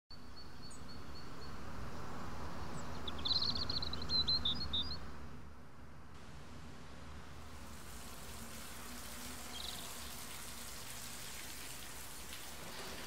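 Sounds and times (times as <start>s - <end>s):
twittering birdsong: 0.1s - 5.4s, 8.1s - 13.0s
low background noise: 0.2s - 13.0s.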